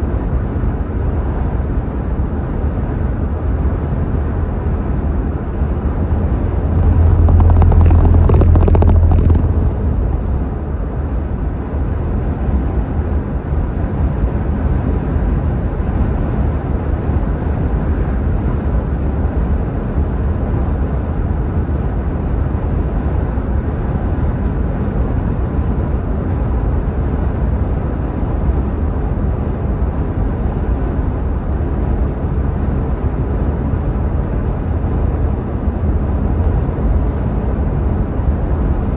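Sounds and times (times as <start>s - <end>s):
car cabin road and engine noise: 0.0s - 38.9s
low rumble: 5.3s - 11.0s.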